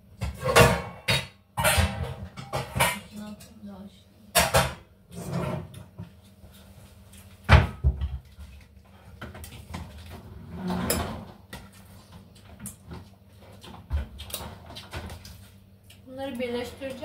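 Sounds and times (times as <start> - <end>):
steel pot on stone countertop: 0.0 - 7.4, 8.0 - 17.0.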